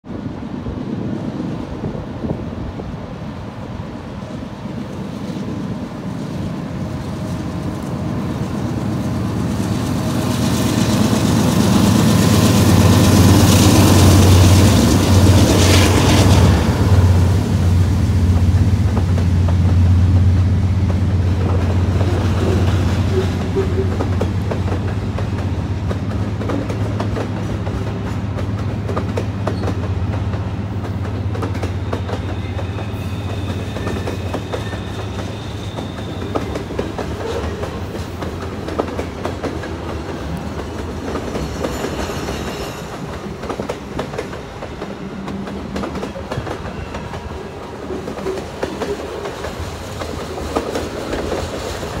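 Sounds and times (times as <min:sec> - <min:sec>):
freight cars rumbling: 0:01.6 - 0:52.0
wheels clicking over rail joints: 0:18.3 - 0:32.8, 0:33.4 - 0:52.0
high wheel squeal: 0:32.1 - 0:37.7, 0:41.4 - 0:43.1.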